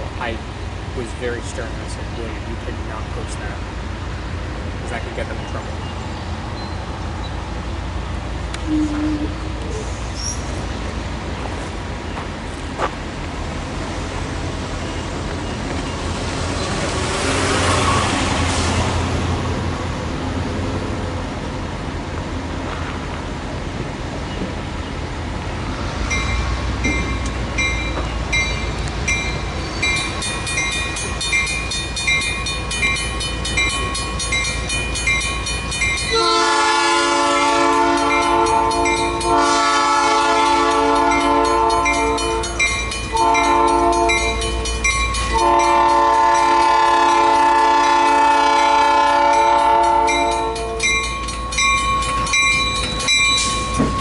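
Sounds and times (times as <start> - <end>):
locomotive engine rumbling: 0.0 - 54.0
train horn blasts: 8.6 - 9.8, 36.1 - 44.4, 45.3 - 50.9
locomotive bell ringing: 26.0 - 54.0.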